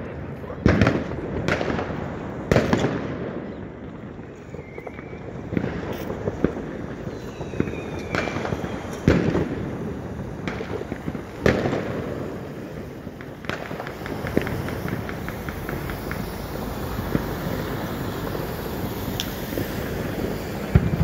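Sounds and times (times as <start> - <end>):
fireworks bangs: 0.0 - 21.0
rocket whistle: 4.3 - 5.5, 6.9 - 9.2, 14.0 - 21.0.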